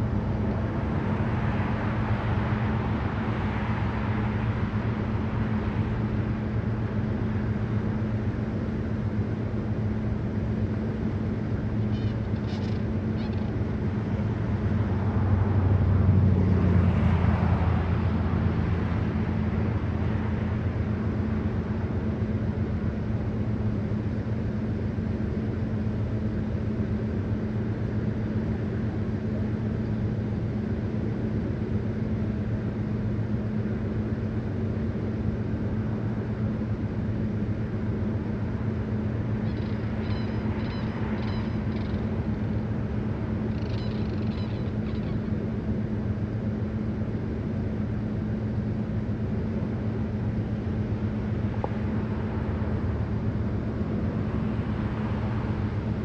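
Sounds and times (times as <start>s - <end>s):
vehicle engine idling: 0.0s - 56.0s
cranes calling: 11.8s - 13.6s, 39.4s - 45.5s.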